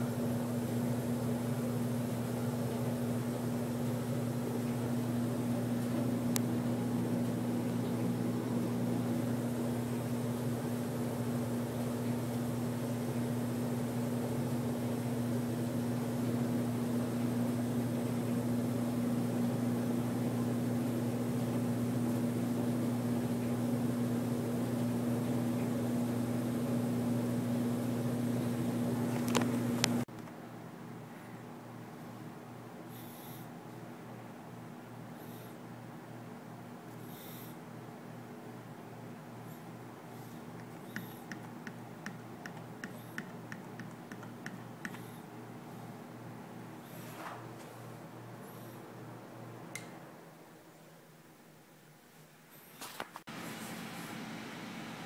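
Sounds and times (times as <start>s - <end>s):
air handler blower running: 0.0s - 30.1s, 39.0s - 49.9s, 53.3s - 55.0s
steady low hum: 0.0s - 51.0s.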